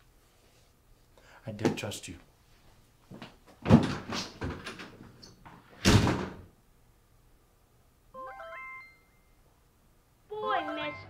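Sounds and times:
door slamming: 3.6 - 4.8, 5.8 - 6.5.

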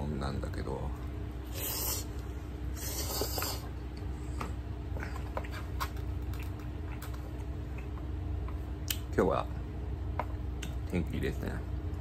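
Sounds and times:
person slurping food: 1.5 - 2.1, 2.8 - 3.7
chewing with wet mouth clicks: 5.0 - 9.1, 10.6 - 10.9.

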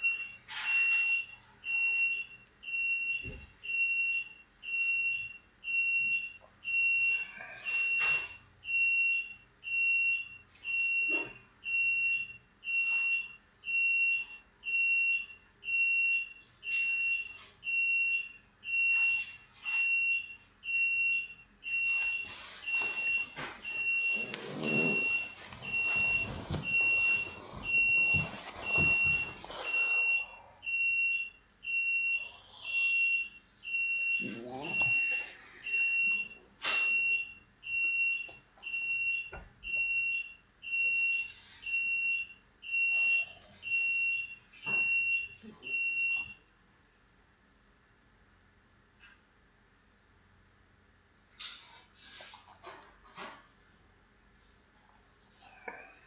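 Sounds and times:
handling and rustling noises: 21.8 - 30.2.

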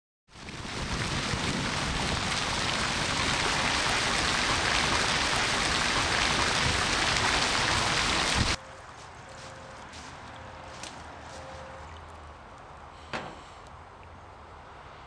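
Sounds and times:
fountain water splashing: 0.3 - 8.6.

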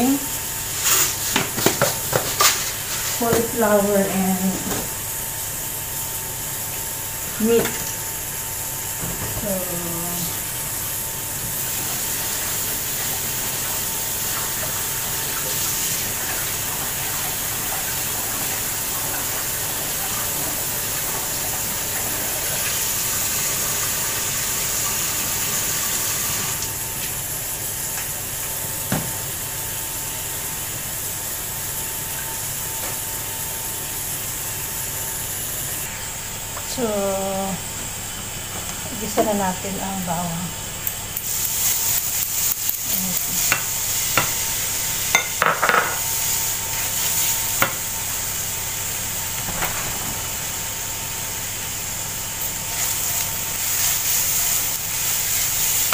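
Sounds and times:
pressure cooker steam hissing: 41.1 - 49.2, 51.3 - 55.9.

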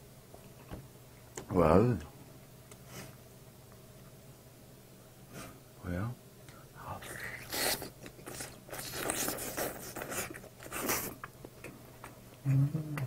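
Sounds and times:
person chewing food: 7.4 - 12.2
person humming mm: 12.4 - 13.0.

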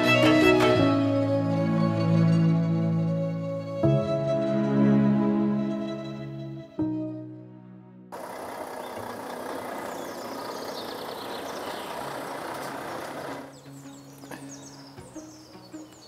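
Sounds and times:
lorry engine rumbling: 8.1 - 15.5
birds chirping: 8.2 - 16.0.

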